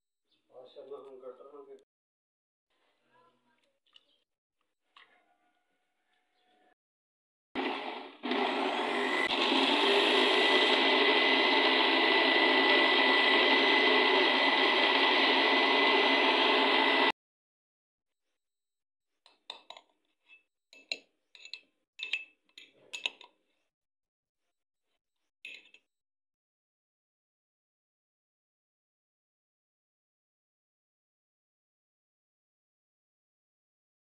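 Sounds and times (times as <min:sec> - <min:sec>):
electric blender whining: 0:07.6 - 0:17.2
spoon clinking against glass jar: 0:19.3 - 0:23.4, 0:25.5 - 0:25.8.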